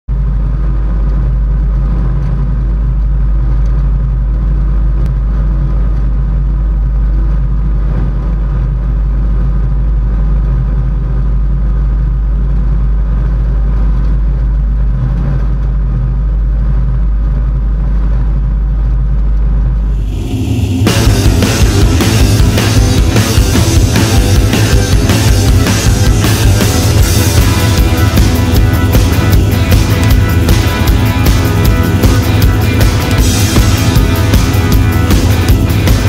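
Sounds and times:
faint whine tones: 0.1 - 36.0
harvester diesel engine rumble: 19.8 - 36.0.

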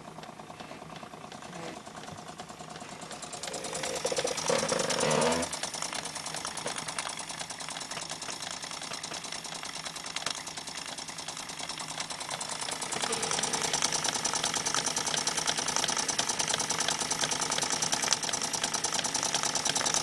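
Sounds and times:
model engine mechanical clatter: 0.0 - 20.0
loud pitched machine sound: 2.4 - 9.7, 11.4 - 16.1.

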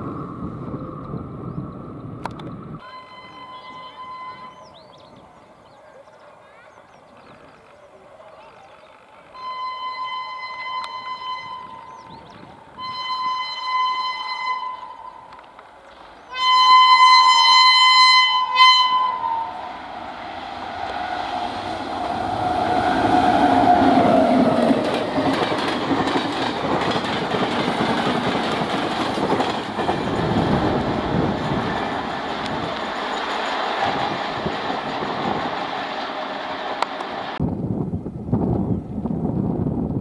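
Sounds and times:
locomotive horn blasts: 2.8 - 4.7, 9.4 - 12.1, 12.7 - 15.4, 16.3 - 19.8
train wheels rolling on rails: 15.0 - 37.4.

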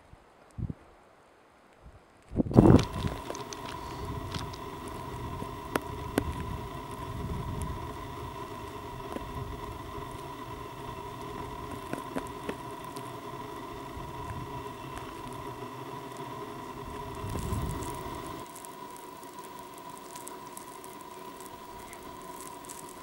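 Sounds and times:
wind rumble on microphone: 0.0 - 0.9, 1.8 - 12.6, 13.8 - 15.5, 16.8 - 18.4
faint high whine: 2.5 - 23.0.

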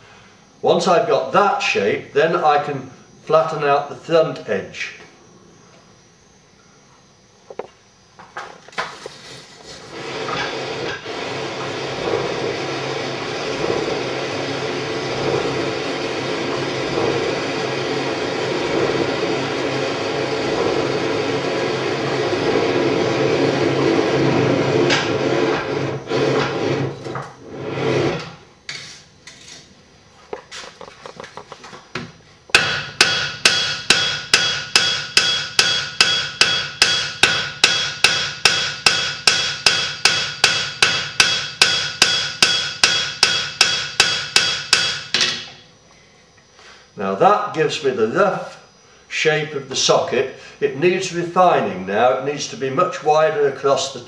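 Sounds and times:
hammer striking iron on anvil: 32.5 - 45.6.

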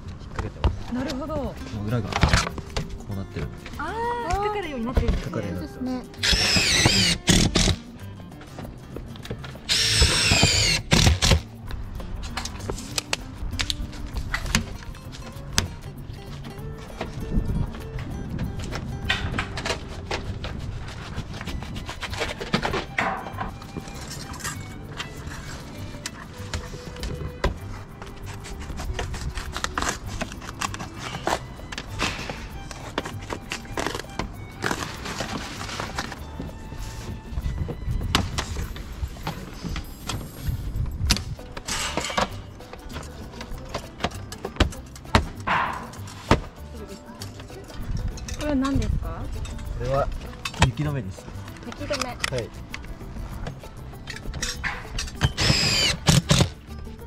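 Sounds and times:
background music: 0.0 - 57.0
impact driver motor whine: 6.2 - 7.8, 9.7 - 11.3, 55.3 - 56.5.

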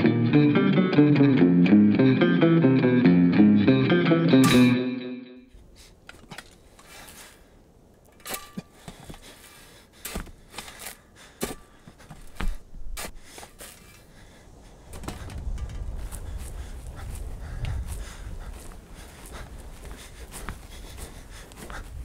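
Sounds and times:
spade striking and scraping soil: 4.4 - 4.8, 8.0 - 14.1.

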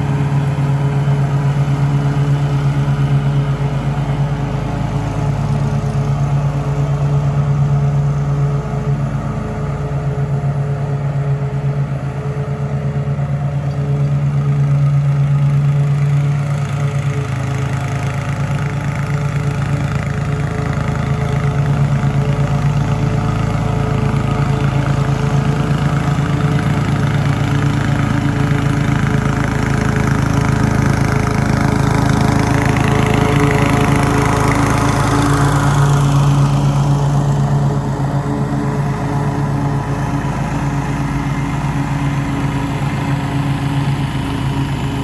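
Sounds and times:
small lawn mower engine: 0.0 - 45.0.

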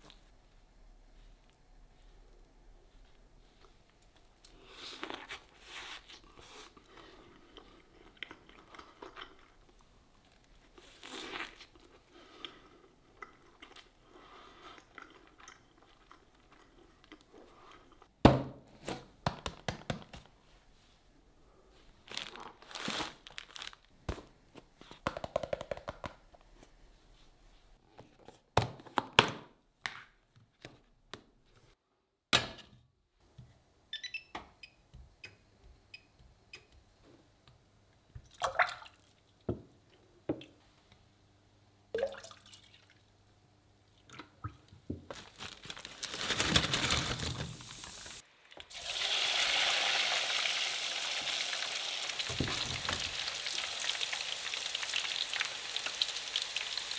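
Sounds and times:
plastic wrap crinkling and tearing: 22.0 - 24.3, 45.1 - 48.2
hot oil sizzling and bubbling: 47.5 - 56.9.

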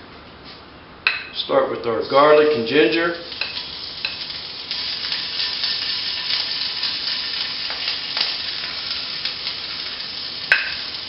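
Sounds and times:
garlic sizzling in hot oil: 3.2 - 11.0.

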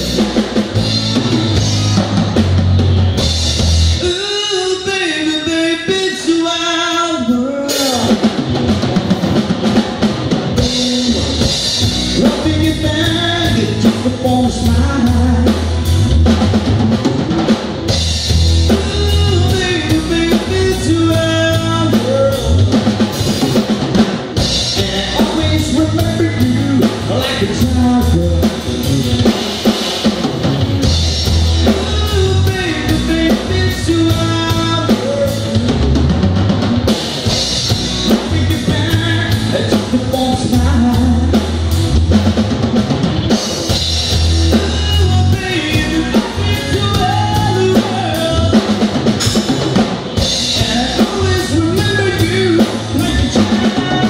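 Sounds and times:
drum kit: 0.0 - 54.0
electric bass: 0.0 - 54.0
electric guitar: 0.0 - 54.0
person singing: 4.0 - 8.4, 10.6 - 15.7, 18.7 - 22.7, 24.6 - 29.4, 31.6 - 35.8, 37.9 - 41.5, 44.4 - 48.9, 50.2 - 54.0.

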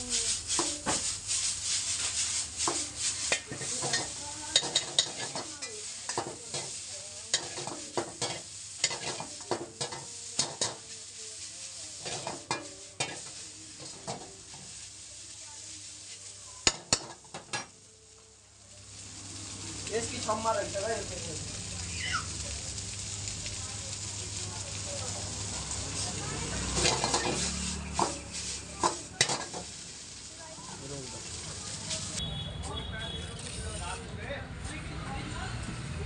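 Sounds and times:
metal ladle scraping wok: 0.0 - 17.7, 25.4 - 30.4
food sizzling: 0.0 - 32.5.

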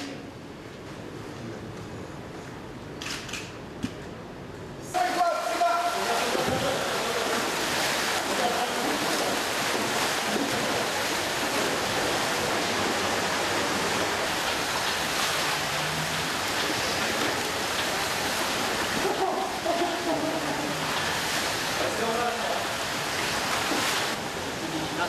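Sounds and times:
water splashing in a tank: 5.0 - 25.0.

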